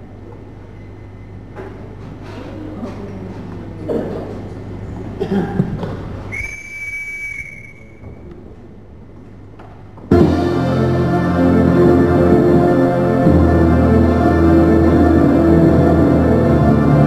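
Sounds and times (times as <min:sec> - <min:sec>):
long steady whistle: 0:06.3 - 0:08.1
loud dance music: 0:10.1 - 0:17.0.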